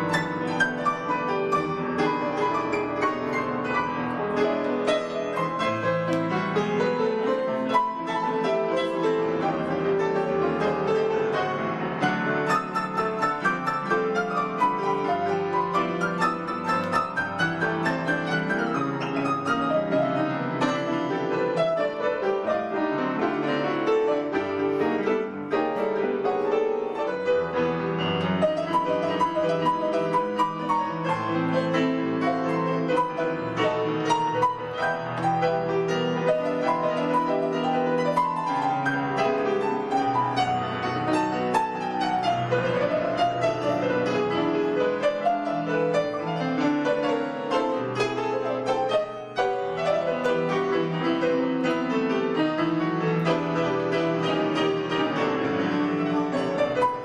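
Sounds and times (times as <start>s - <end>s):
piano playing choro: 0.0s - 57.0s.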